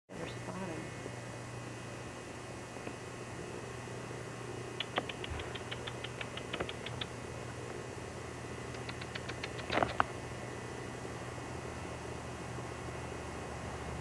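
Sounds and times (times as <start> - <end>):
small animal chattering: 4.7 - 7.4, 8.6 - 10.2.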